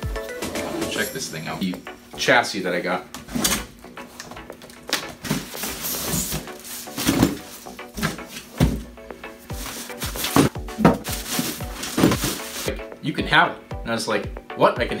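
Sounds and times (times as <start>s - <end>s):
plastic bag rustling: 5.1s - 8.8s, 9.5s - 12.7s
cardboard scraping: 5.2s - 8.8s, 9.5s - 12.7s
foam squeaking: 5.4s - 8.1s
dull thumps: 7.0s - 9.0s, 9.6s - 12.8s.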